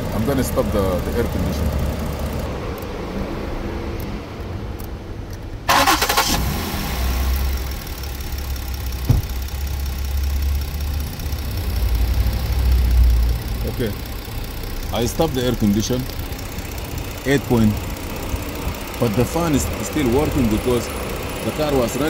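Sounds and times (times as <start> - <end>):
car engine idling: 0.0 - 22.0
radiator fans rushing: 11.0 - 22.0.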